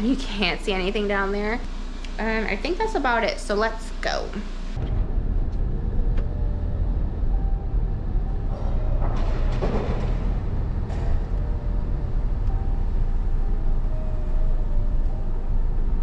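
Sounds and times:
car engine and road rumble: 4.8 - 16.0.

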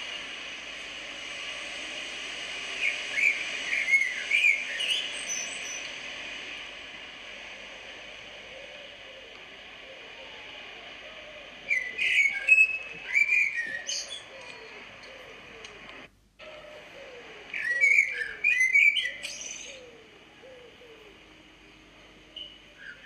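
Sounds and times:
animal chirps and whistles: 2.8 - 5.9, 11.6 - 14.7, 17.6 - 19.9
short falling whistles: 11.7 - 14.2.

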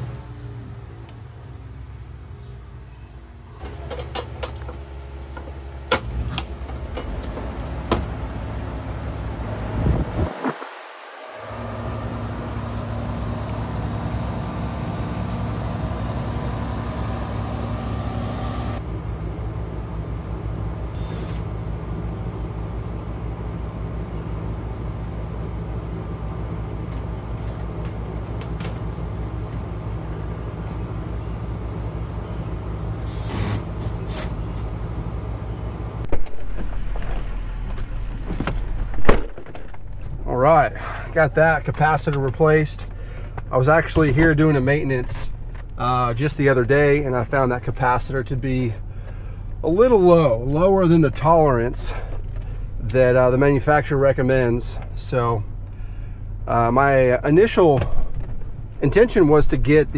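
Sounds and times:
air conditioner humming: 34.3 - 59.9.

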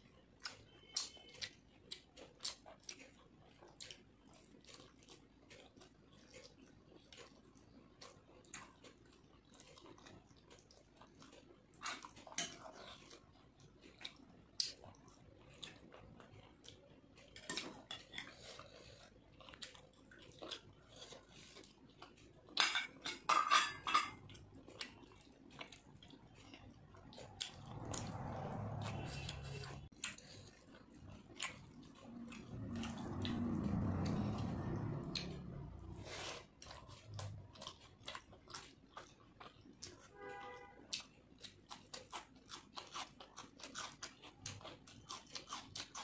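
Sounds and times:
wet chewing: 0.0 - 22.6, 24.2 - 40.1, 40.8 - 46.0
low rumble: 27.3 - 29.9, 32.0 - 36.1.

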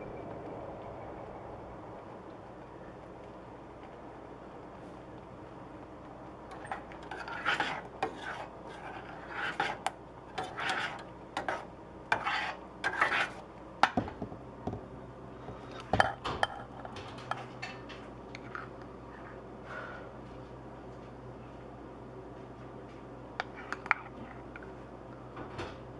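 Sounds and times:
spoon scraping a pot: 6.5 - 13.4, 23.4 - 24.5.

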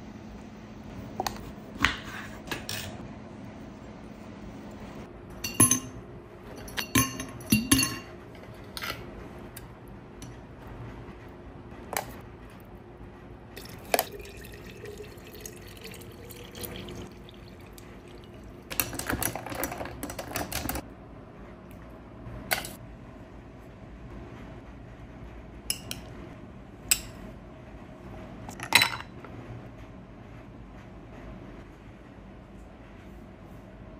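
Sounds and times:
water pouring into glass jar: 13.6 - 19.0.

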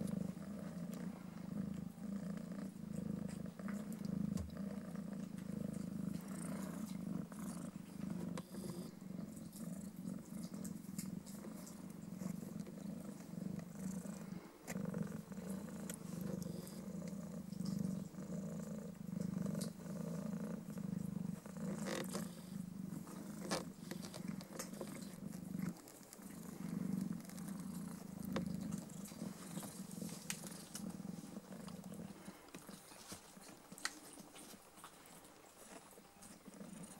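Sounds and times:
cat purring: 0.0 - 36.9.

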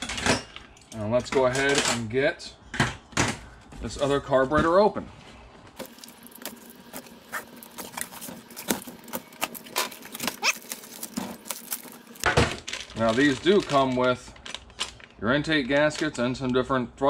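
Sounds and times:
plastic bag crinkling: 5.8 - 16.2.

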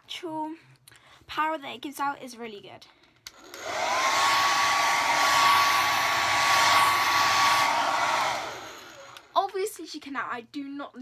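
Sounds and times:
hair dryer running: 3.3 - 9.3.

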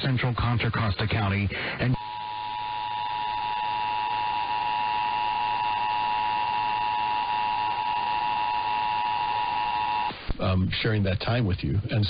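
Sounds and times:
radio static: 0.0 - 12.0
two-tone alarm signal: 2.0 - 10.1.

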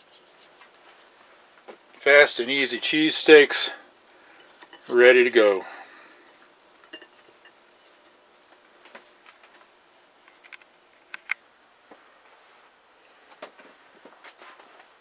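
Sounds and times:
faint handling clicks and taps: 8.5 - 12.0.

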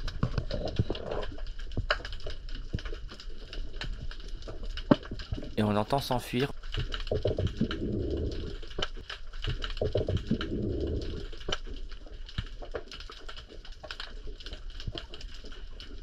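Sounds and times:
small clicks in water: 0.0 - 5.6, 6.6 - 16.0
fish grunting underwater: 7.2 - 8.9, 9.8 - 11.6.

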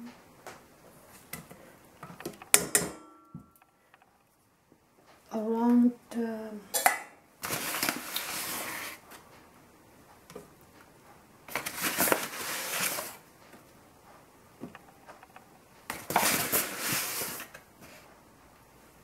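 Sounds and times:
paper bag rustling: 7.4 - 9.0, 11.5 - 13.2, 16.0 - 17.6.

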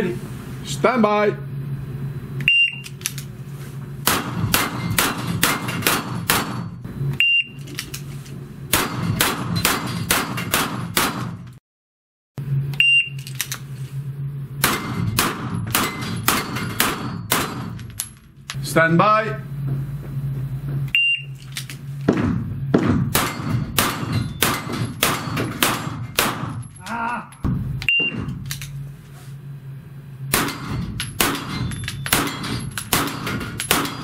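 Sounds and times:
low hum: 0.0 - 11.6, 12.4 - 34.0
shot timer beeps: 2.4 - 2.9, 7.2 - 7.6, 12.8 - 13.2, 20.9 - 21.4, 27.8 - 28.3
pistol shots: 4.0 - 6.7, 8.7 - 11.4, 14.6 - 17.8, 22.1 - 26.6, 30.3 - 34.0
bullets clanging on steel plates: 14.6 - 18.2, 23.2 - 27.4, 30.4 - 34.0.

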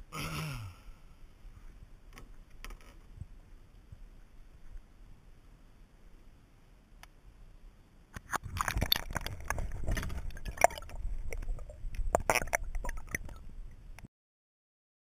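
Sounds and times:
water sloshing and splashing: 8.2 - 14.0.

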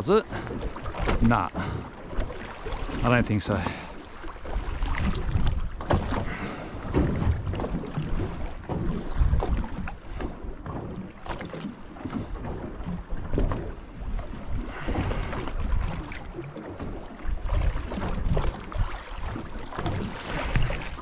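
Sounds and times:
water lapping against boat hull: 0.0 - 21.0
wind buffeting microphone: 4.4 - 11.0.

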